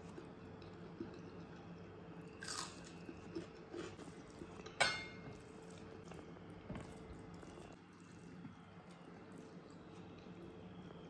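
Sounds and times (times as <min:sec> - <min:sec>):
faint steady hum: 0:00.0 - 0:11.0
soft eating sounds: 0:00.0 - 0:11.0
ringing clink against plate: 0:04.8 - 0:05.2.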